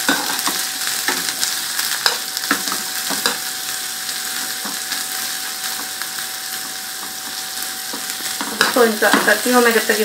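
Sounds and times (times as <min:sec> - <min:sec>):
onions sizzling in oil: 0:00.0 - 0:10.0.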